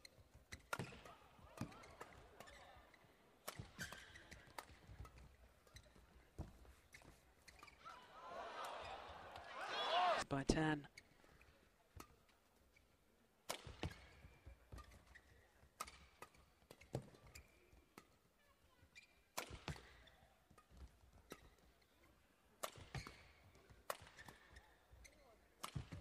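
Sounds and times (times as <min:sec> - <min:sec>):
shoes squeaking on court: 0:01.6 - 0:08.0, 0:13.8 - 0:17.8, 0:18.8 - 0:22.0, 0:22.9 - 0:26.0
badminton racket hitting shuttlecock: 0:03.4 - 0:06.0.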